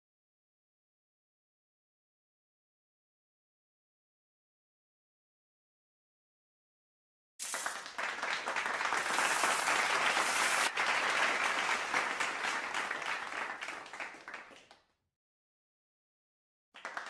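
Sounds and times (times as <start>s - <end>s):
audience applause: 7.4s - 14.8s, 16.8s - 17.0s.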